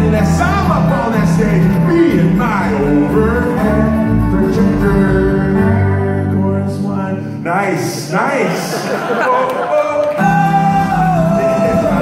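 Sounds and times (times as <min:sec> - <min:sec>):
people singing: 0:00.0 - 0:06.2, 0:09.0 - 0:12.0
acoustic guitar: 0:00.0 - 0:12.0.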